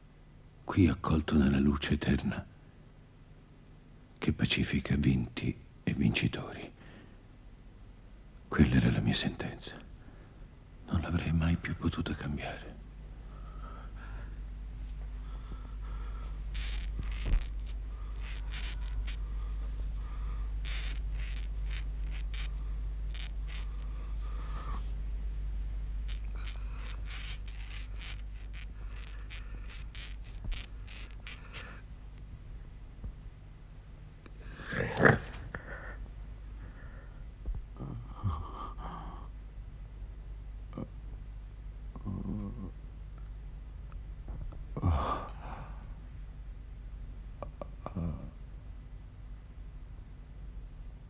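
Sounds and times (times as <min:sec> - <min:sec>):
steady low hum: 0:00.0 - 0:51.0
pen nib scratching on paper: 0:16.5 - 0:19.2, 0:20.6 - 0:23.9, 0:26.1 - 0:31.8
man moaning: 0:44.8 - 0:45.7.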